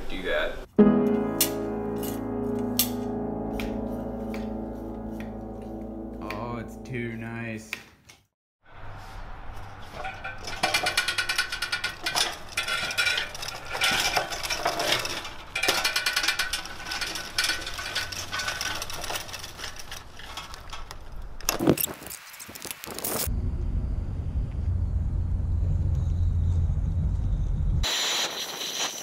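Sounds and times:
cart wheels rolling on asphalt: 8.7 - 23.3
metal pipes rattling: 9.6 - 21.8.

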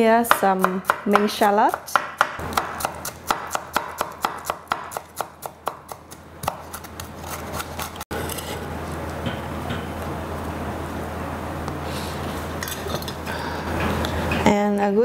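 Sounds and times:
knife chopping on wooden board: 0.3 - 7.8.

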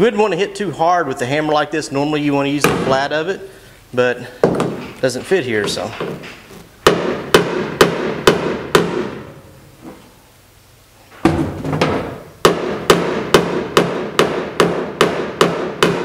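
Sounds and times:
hammer tapping sheet metal: 6.8 - 9.2, 11.8 - 16.0.

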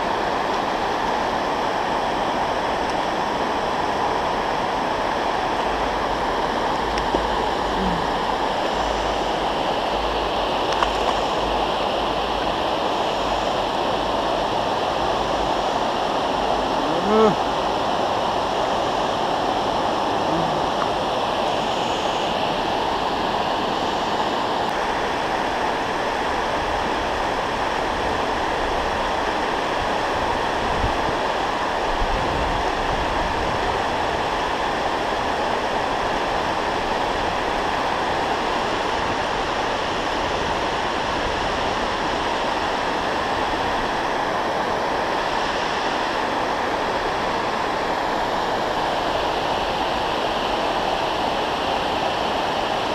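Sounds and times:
water rushing over dam spillway: 0.0 - 52.9.

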